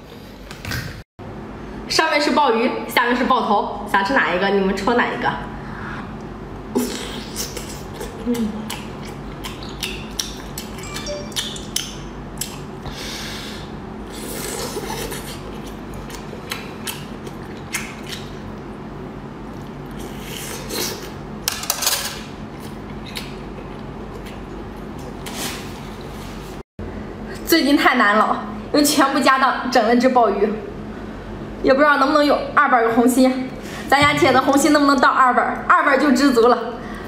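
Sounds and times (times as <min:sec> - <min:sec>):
wet chewing mouth clicks: 0:07.3 - 0:12.7, 0:14.4 - 0:18.4.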